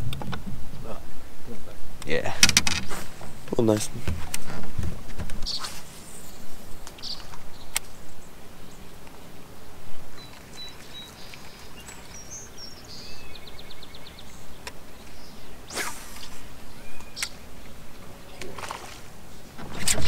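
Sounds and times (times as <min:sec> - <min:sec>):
small birds chirping: 0:05.3 - 0:20.0
sharp clicks: 0:06.8 - 0:07.9, 0:17.0 - 0:17.4
bird trill: 0:07.0 - 0:07.8, 0:10.1 - 0:18.6.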